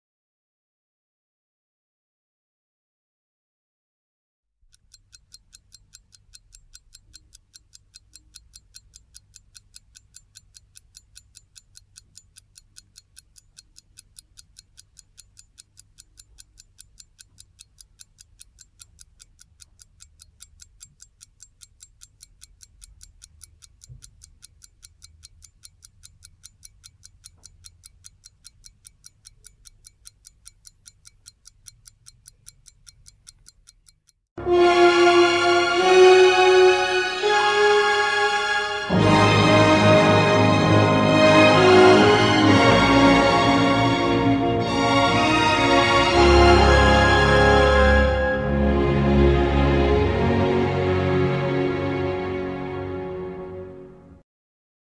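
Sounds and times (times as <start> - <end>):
clock ticking: 4.6 - 34.3.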